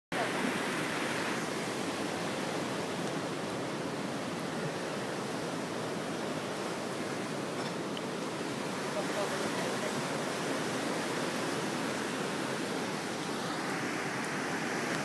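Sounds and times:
ocean surf rushing: 0.1 - 15.0.

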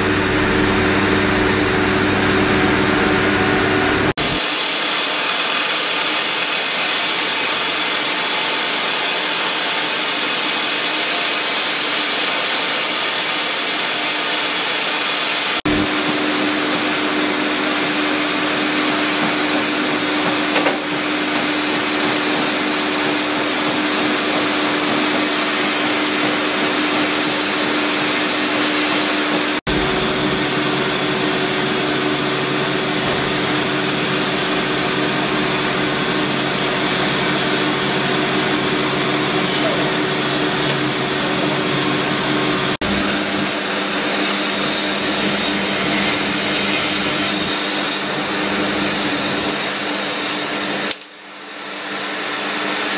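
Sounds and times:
steady hum: 0.0 - 4.4, 15.6 - 20.3, 28.5 - 43.6
rotary tool grinding stone: 42.9 - 50.9.

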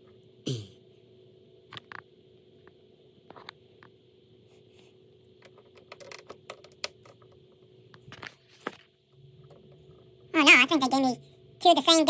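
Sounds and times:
faint steady hum: 0.0 - 12.0
plastic toy parts clicking: 5.7 - 7.2.

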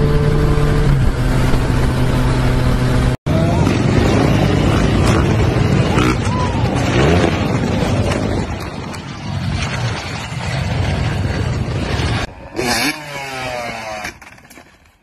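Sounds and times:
dirt bike engines revving: 2.7 - 9.0, 12.4 - 14.1.

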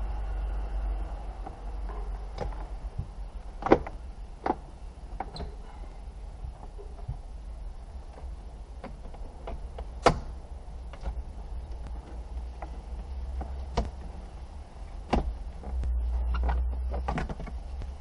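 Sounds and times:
low rumble: 0.0 - 5.2
clicks and knocks on dashboard panels: 1.4 - 5.6, 8.1 - 14.3, 14.9 - 18.0.

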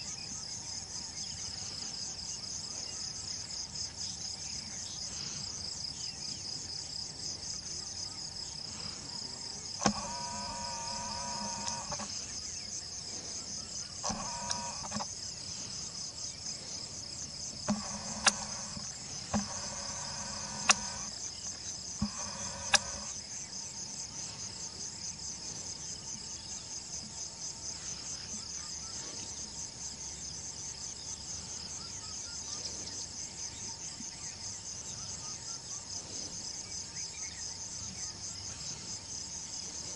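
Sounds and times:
insects chirring: 0.0 - 39.9
sharp clicks: 9.8 - 12.2, 14.0 - 15.1, 17.6 - 23.2.

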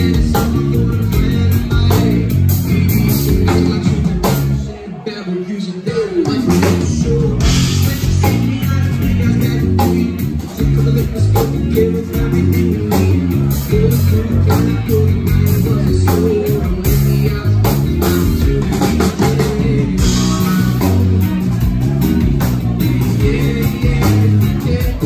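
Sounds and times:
bass guitar notes: 0.0 - 4.8, 5.9 - 25.0
live band playing: 0.0 - 25.0
drum and cymbal hits: 6.2 - 25.0.

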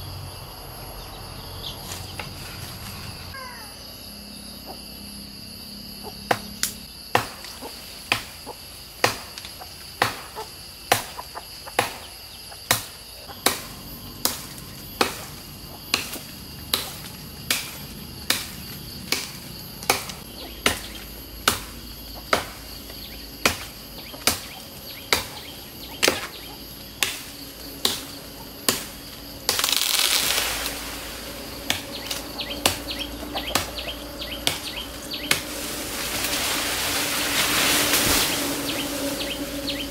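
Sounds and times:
insects buzzing: 0.0 - 39.9
branch falling through leaves: 1.8 - 3.4, 29.5 - 32.4, 34.5 - 39.9
machete chopping wood: 6.3 - 8.4, 9.0 - 30.5, 31.6 - 35.6.

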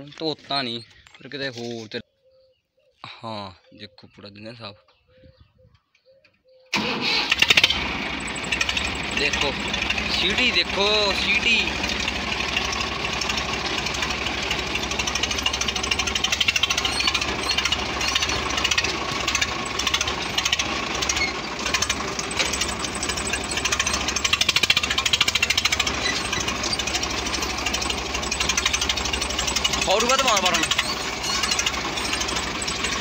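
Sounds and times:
tractor diesel engine clattering: 6.7 - 33.0.

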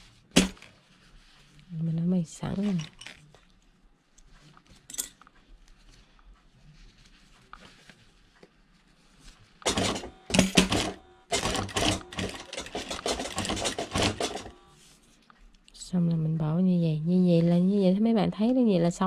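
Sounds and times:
sewing machine stitching: 9.6 - 14.6.

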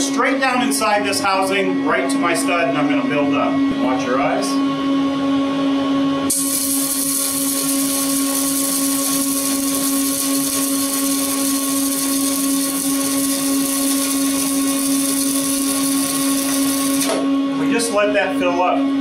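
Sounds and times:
steady hum: 0.0 - 19.0
welding arc hissing: 6.3 - 17.3.

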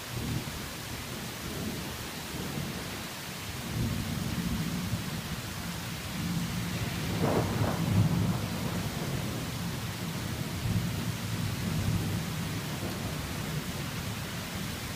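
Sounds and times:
heavy rain falling: 0.0 - 14.9
thunder rumbling: 6.1 - 14.8.

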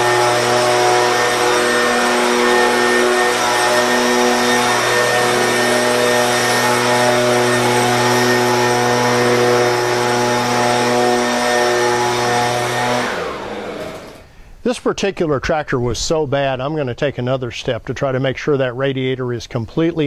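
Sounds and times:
leaf blower running: 0.0 - 14.5.

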